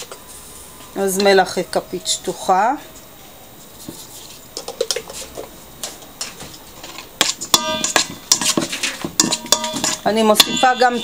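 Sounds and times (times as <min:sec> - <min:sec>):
metal spoon clinking on bowl: 0:07.5 - 0:11.0.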